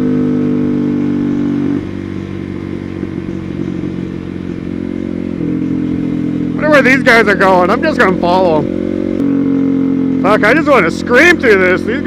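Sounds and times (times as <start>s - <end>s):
motorcycle engine cruising: 0.0s - 12.0s.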